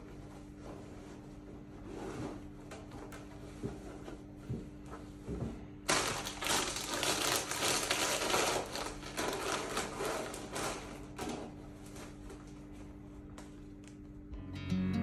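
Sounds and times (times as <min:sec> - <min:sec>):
plastic chip packet crinkling: 0:05.9 - 0:11.4.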